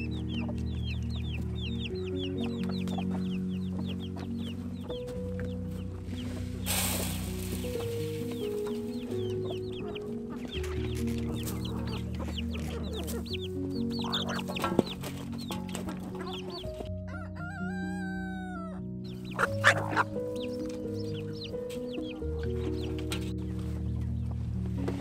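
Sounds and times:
hens clucking and cheeping: 0.0 - 25.0
soft piano music: 0.0 - 25.0
rooster crowing: 17.1 - 18.8.

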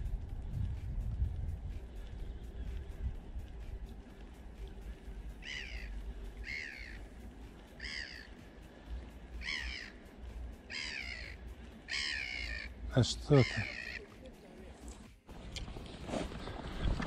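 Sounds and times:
crow cawing: 5.4 - 7.1, 7.7 - 8.5, 9.4 - 10.1, 10.7 - 14.2.

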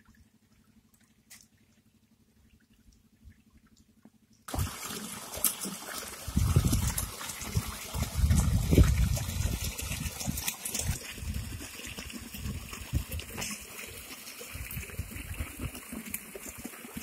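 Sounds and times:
water splashing into a channel: 0.0 - 17.0
water gushing from a pipe: 4.5 - 17.0.

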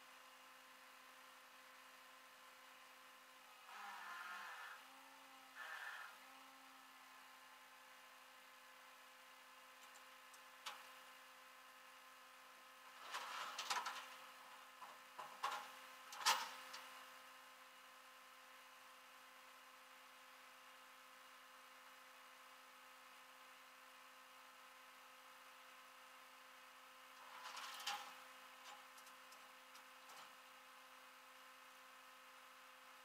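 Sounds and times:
metallic clanks and rattles: 27.2 - 29.1.

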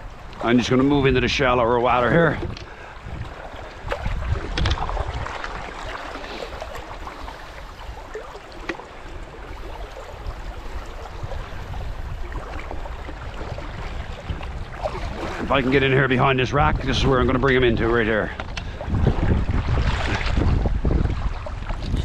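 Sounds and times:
wind rumble on microphone: 0.0 - 22.0
river current rushing: 1.8 - 16.5.

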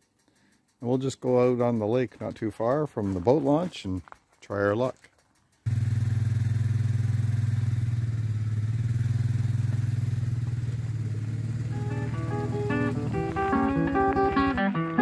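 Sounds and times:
motor running with fast pulse: 5.2 - 10.2
guitar music: 11.7 - 15.0.

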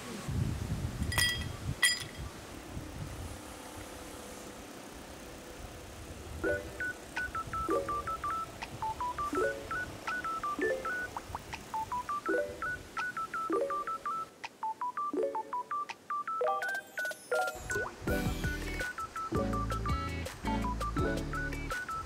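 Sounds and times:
faint steady hiss: 0.0 - 22.0
beeping synth melody: 6.5 - 11.2, 11.8 - 22.0
repeating synth chord: 18.1 - 21.6.

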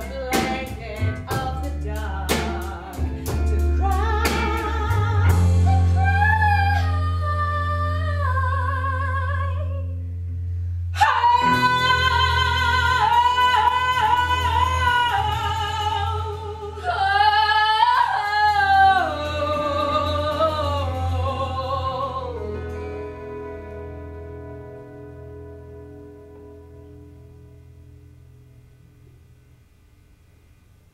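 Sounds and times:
women singing with vibrato: 0.0 - 9.9, 11.0 - 23.2.

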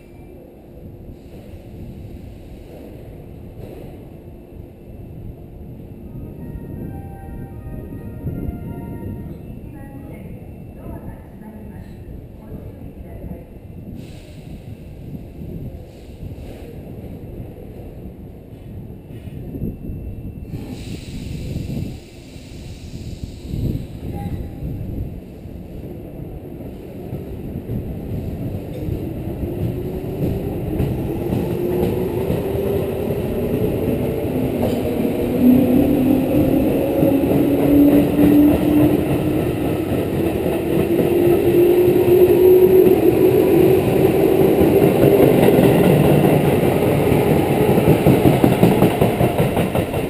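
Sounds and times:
wheels rumbling on rail: 4.8 - 50.0.

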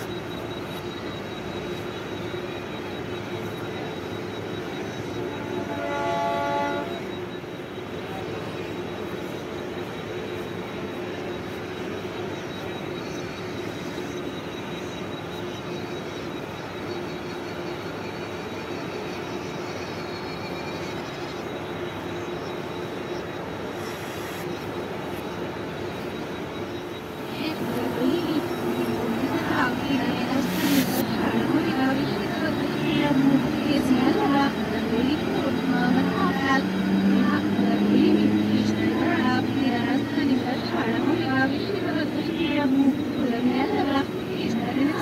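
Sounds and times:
electric train humming and hissing: 0.0 - 45.0
train moving off: 0.0 - 45.0
train horn blast: 5.4 - 7.1.

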